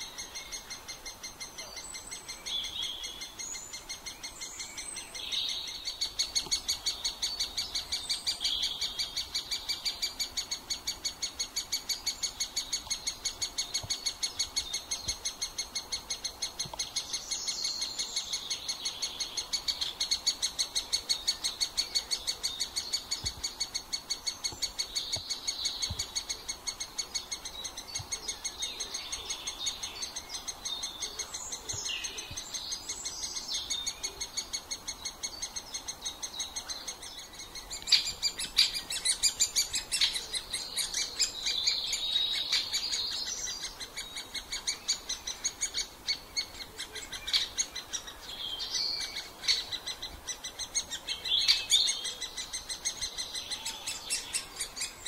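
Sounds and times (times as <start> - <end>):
woodpeckers calling: 0.0 - 55.0.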